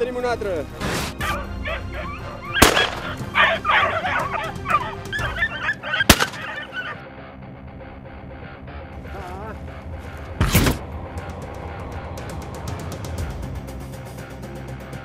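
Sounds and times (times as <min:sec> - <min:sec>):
high-pitched animal calls: 0:01.6 - 0:07.0
shotgun shots: 0:02.6 - 0:03.2, 0:06.0 - 0:06.6.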